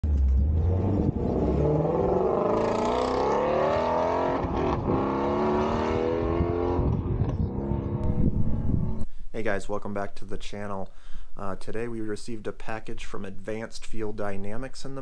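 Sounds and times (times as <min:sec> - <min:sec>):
car engine accelerating hard: 0:00.0 - 0:09.0.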